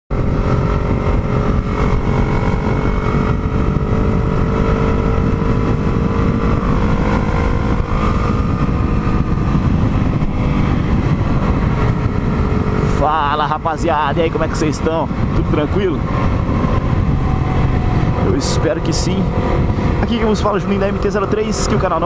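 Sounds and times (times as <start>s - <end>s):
motorcycle engine cruising: 0.1s - 22.0s
road and wind noise: 0.1s - 22.0s.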